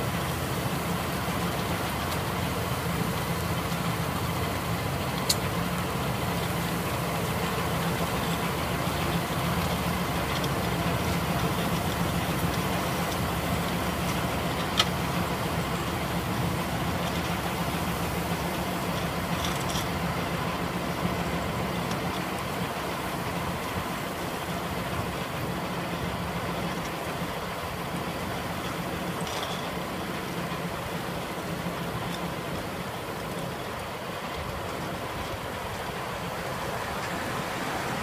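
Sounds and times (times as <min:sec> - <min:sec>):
milling machine grinding soil: 0:00.0 - 0:38.0
tractor engine under load: 0:00.0 - 0:38.0.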